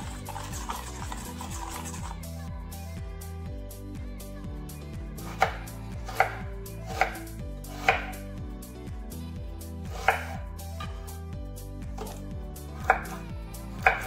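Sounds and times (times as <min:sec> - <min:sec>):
knife chopping on cutting board: 0:05.2 - 0:08.2, 0:09.9 - 0:10.4, 0:13.8 - 0:14.0.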